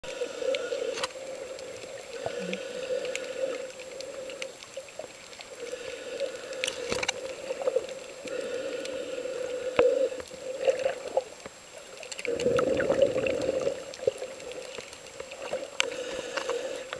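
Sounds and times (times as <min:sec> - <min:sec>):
muffled underwater drone: 0:00.1 - 0:16.9
sharp underwater clicks and pops: 0:06.4 - 0:07.4.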